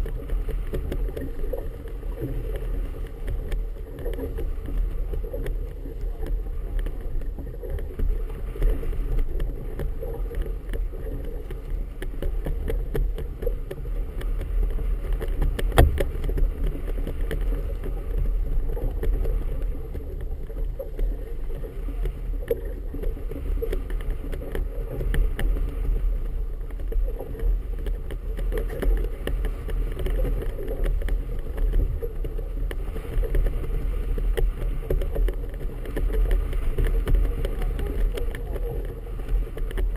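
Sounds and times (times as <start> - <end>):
water lapping against boat hull: 0.0 - 39.9
wind buffeting microphone: 0.0 - 39.9
sharp knock on hull: 15.5 - 16.6.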